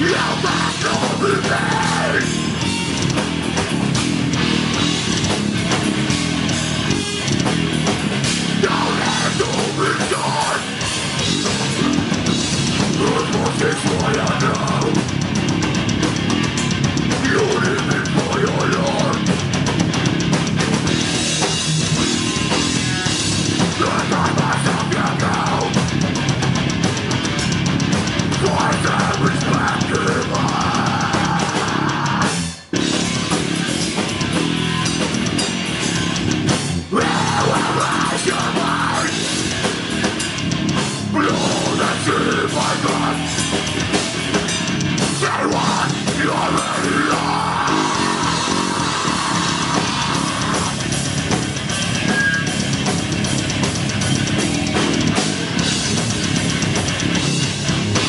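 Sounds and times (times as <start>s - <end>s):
death metal band playing live: 0.0s - 58.0s.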